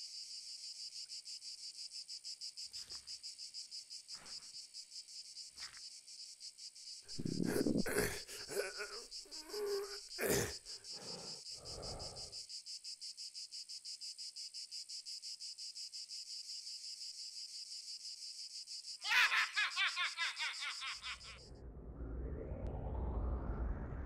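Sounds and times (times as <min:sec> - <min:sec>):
insects trilling: 0:00.0 - 0:21.4
man laughing loudly: 0:07.2 - 0:10.5, 0:19.0 - 0:21.4.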